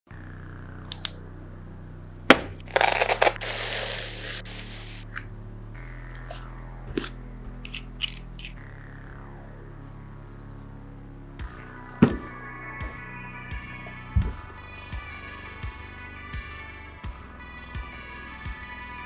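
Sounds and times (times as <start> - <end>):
music with held chords: 0.1 - 19.0
sharp knock: 2.3 - 2.6
plastic wrap crinkling: 2.3 - 5.1.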